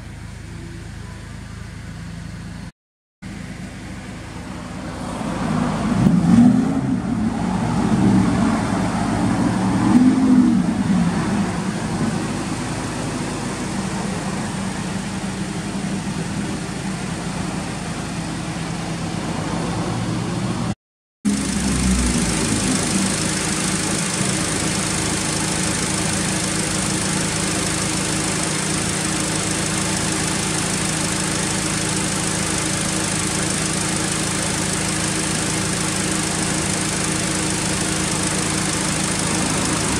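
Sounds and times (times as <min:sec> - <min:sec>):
car engine idling: 0:03.3 - 0:39.9
car engine revving: 0:04.6 - 0:16.2, 0:21.3 - 0:39.9.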